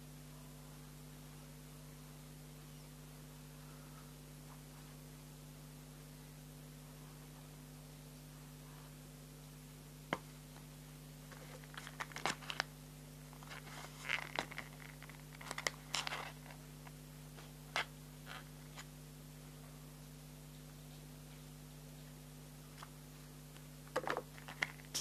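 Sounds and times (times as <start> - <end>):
plastic pouch crinkling: 11.4 - 12.7, 13.4 - 16.6.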